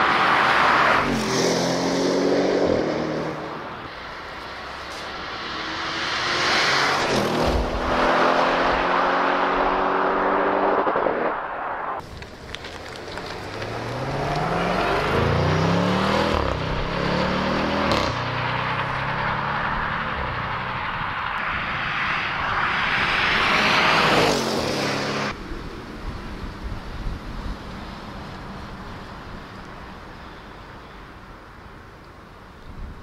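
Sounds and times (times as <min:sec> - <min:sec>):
car passing by: 0:00.0 - 0:12.0, 0:12.7 - 0:25.4
faint car running steadily: 0:00.9 - 0:33.0
car engine accelerating hard: 0:05.4 - 0:11.6, 0:13.5 - 0:20.3.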